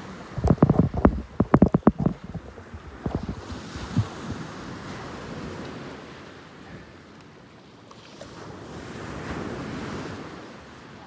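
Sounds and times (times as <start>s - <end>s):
wind buffeting microphone: 0.0s - 6.1s
sea wash: 0.0s - 11.0s.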